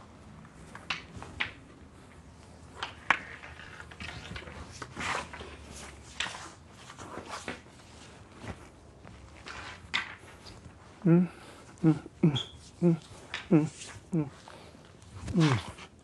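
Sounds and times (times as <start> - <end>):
wooden staff swishing: 15.1 - 16.0.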